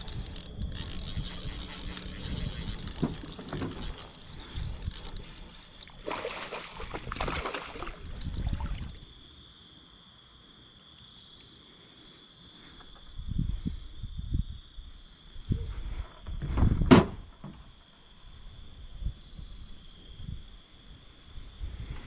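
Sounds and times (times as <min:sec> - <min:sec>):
fishing reel clicking: 0:00.0 - 0:06.0, 0:07.7 - 0:09.1
fish splashing at surface: 0:05.8 - 0:09.1.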